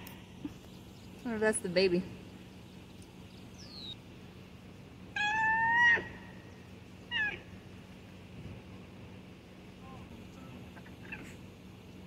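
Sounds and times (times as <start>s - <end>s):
animal meow-like call: 5.2s - 6.2s.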